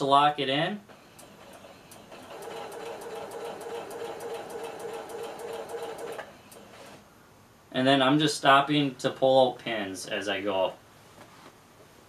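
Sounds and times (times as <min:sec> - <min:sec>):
electric sewing machine stitching: 0:01.2 - 0:06.3.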